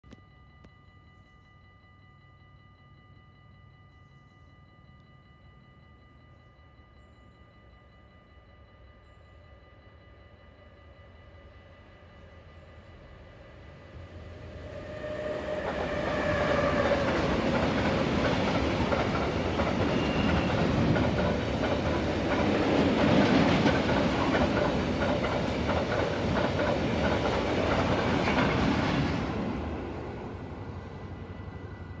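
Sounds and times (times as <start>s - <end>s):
freight train passing: 9.6s - 32.0s
wheels clattering over rail joints: 15.6s - 29.8s.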